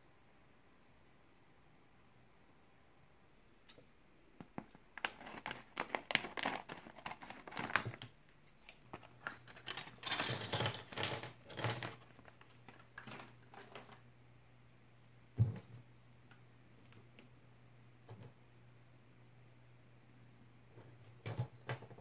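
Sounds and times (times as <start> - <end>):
plastic foil crinkling: 4.6 - 10.0.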